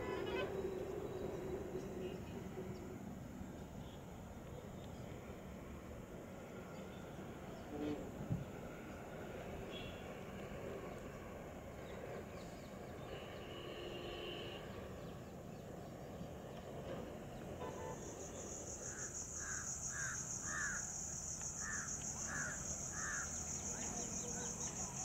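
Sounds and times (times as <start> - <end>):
crow cawing: 18.9 - 20.9, 21.6 - 23.3.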